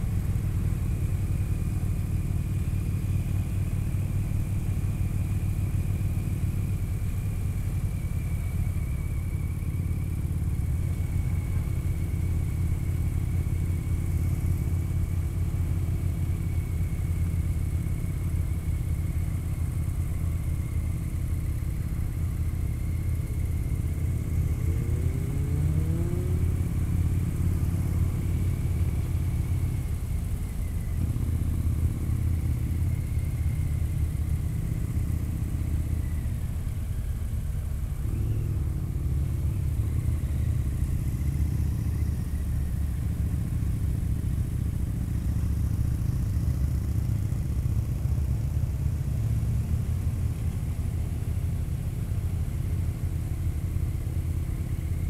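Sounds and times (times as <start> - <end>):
motorcycle engine rumbling: 0.0 - 55.0.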